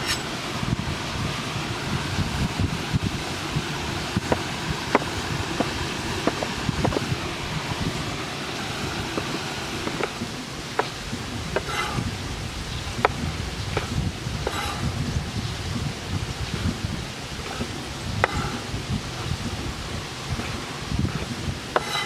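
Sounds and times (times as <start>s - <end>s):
steady background hiss: 0.0s - 22.0s
knife striking a wooden board: 21.8s - 22.0s.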